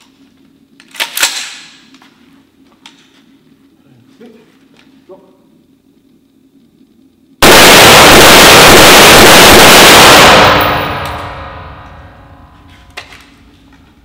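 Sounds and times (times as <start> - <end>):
rapid rifle gunfire: 7.4 - 11.8
gunshot echo ringing: 7.4 - 13.2.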